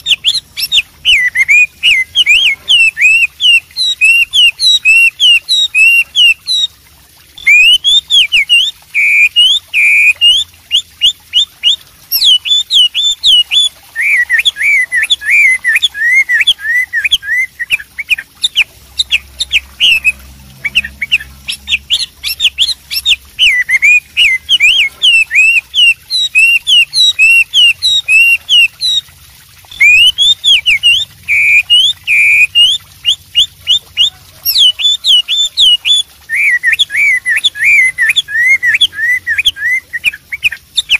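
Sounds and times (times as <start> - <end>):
bird singing whistled notes: 0.0 - 6.7, 7.4 - 29.0, 29.7 - 40.9.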